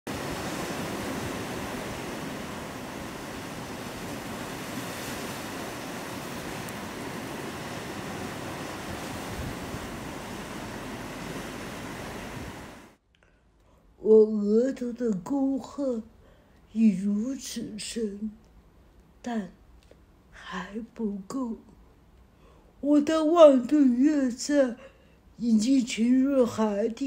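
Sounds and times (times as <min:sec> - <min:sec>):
sea waves breaking on rocky shore: 0:00.1 - 0:13.0.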